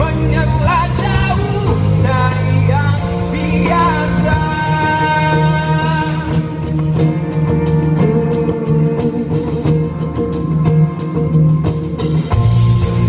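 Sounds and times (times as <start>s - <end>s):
man singing pop-rock song: 0.0s - 10.2s
loud musical accompaniment: 0.0s - 13.0s.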